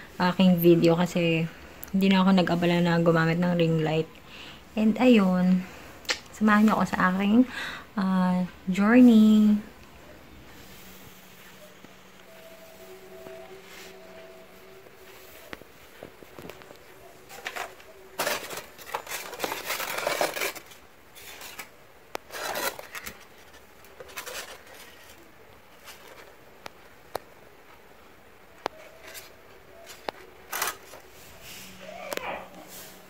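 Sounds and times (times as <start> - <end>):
styrofoam scraping and rustling: 15.1 - 26.4, 28.7 - 31.9.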